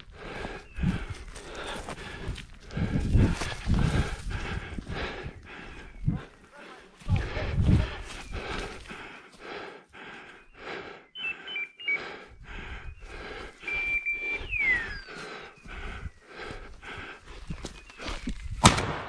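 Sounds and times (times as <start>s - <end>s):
footsteps crunching through forest litter: 0.0s - 5.2s, 6.2s - 9.7s, 14.7s - 18.6s.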